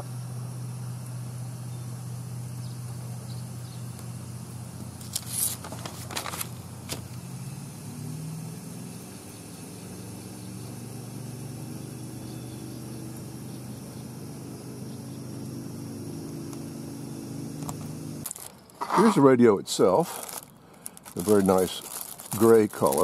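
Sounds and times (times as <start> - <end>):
vehicle engine idling: 0.0 - 18.6
paper rustling: 5.0 - 7.1, 18.2 - 19.2, 20.0 - 23.0.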